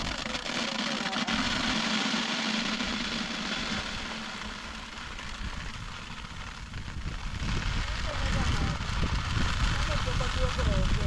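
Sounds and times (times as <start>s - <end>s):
grain pouring onto a tarp: 0.0s - 11.0s
low hum: 1.0s - 9.8s.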